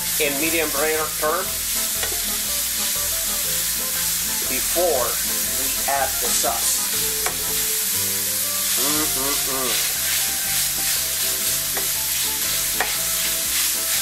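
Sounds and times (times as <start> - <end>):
meat sizzling in a skillet: 0.0 - 14.0
spatula stirring and scraping: 1.6 - 14.0
spatula clicking against pan: 2.0 - 2.2, 11.7 - 12.0, 12.8 - 13.0.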